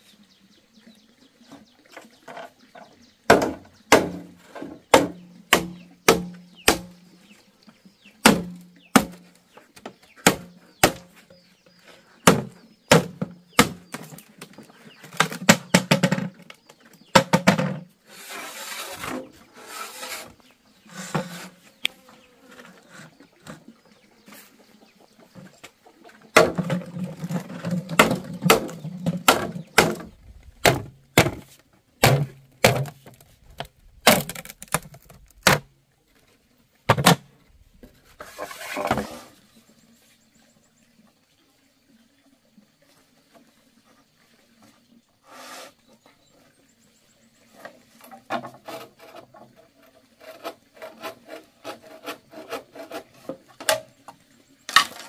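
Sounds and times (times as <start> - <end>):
machete chopping bamboo: 3.3 - 7.0, 8.2 - 9.2, 10.2 - 11.2, 12.2 - 14.2, 27.9 - 33.2, 34.0 - 35.7
rasping on bamboo: 18.0 - 23.2, 45.2 - 45.8, 47.6 - 53.7.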